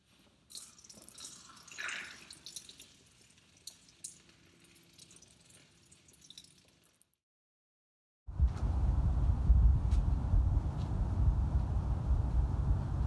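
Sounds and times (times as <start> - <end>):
beer splashing from a can: 0.5 - 7.1
faint drips: 0.5 - 7.1.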